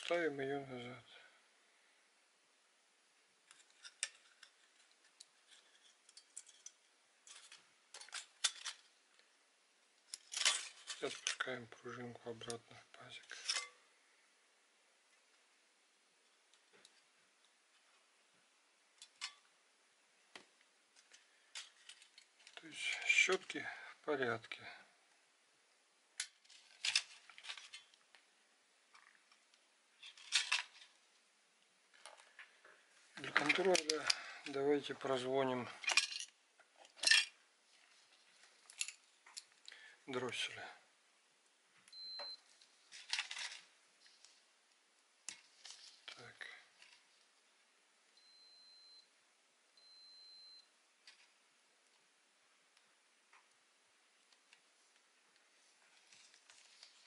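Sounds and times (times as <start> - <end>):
small parts scraping: 3.4 - 9.3, 10.0 - 11.6, 12.3 - 13.9, 20.9 - 23.6, 26.2 - 28.2, 28.9 - 31.1, 31.9 - 40.6, 42.5 - 44.5
faint rustling: 54.2 - 57.0.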